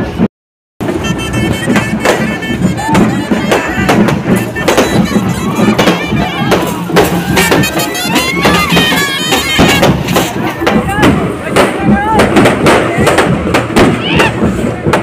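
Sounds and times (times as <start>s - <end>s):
barrel drums beaten with sticks: 0.0s - 15.0s
trumpets and wind instruments: 0.8s - 15.0s.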